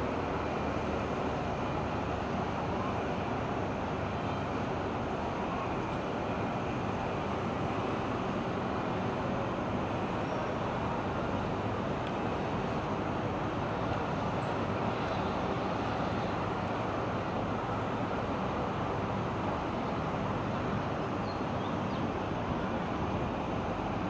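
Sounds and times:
distant city traffic hum: 0:00.0 - 0:24.0.

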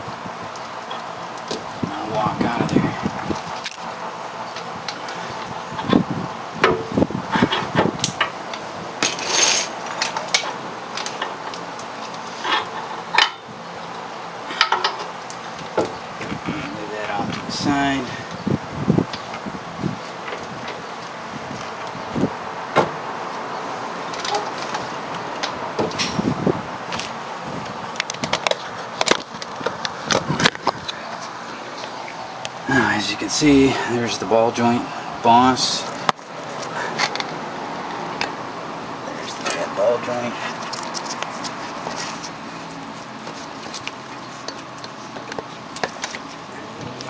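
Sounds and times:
metal scrape: 0:09.0 - 0:09.8.

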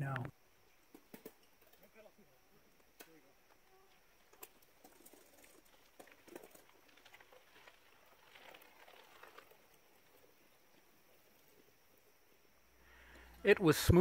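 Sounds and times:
soft rustle: 0:03.5 - 0:13.4.

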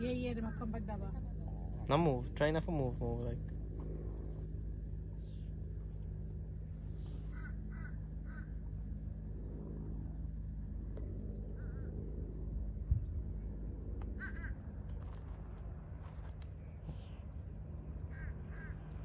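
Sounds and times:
low background hum: 0:00.0 - 0:19.0
crow cawing: 0:07.2 - 0:08.5, 0:11.6 - 0:11.9, 0:14.2 - 0:14.6, 0:18.1 - 0:19.0.

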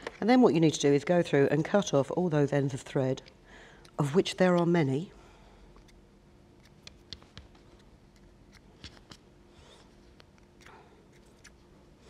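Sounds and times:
shears snipping thread: 0:10.2 - 0:11.6.

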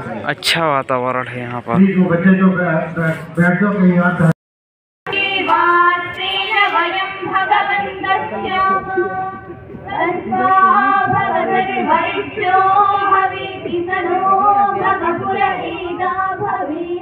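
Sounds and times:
girls singing long notes: 0:05.1 - 0:17.0.

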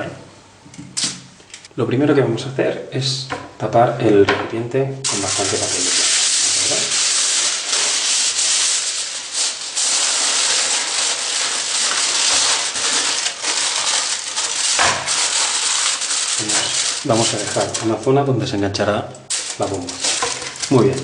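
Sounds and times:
aluminium foil crinkling: 0:05.1 - 0:18.1, 0:19.3 - 0:21.0.

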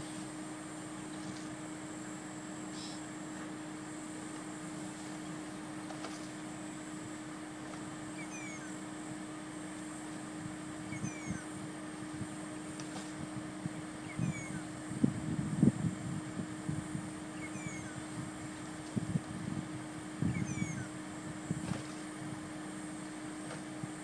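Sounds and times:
low engine hum: 0:00.0 - 0:24.0
high falling chirps: 0:08.1 - 0:08.8, 0:10.8 - 0:11.6, 0:14.0 - 0:14.7, 0:17.3 - 0:18.1, 0:20.2 - 0:21.0.

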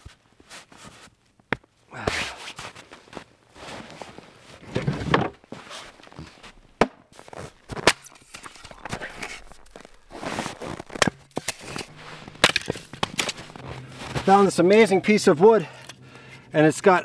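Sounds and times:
footsteps crunching through snow: 0:02.3 - 0:04.7, 0:05.5 - 0:15.5.

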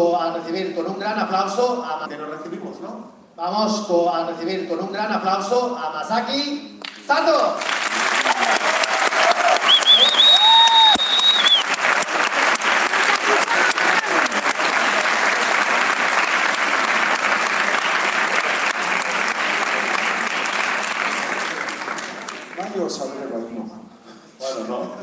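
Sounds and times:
audience applauding: 0:06.8 - 0:23.0.

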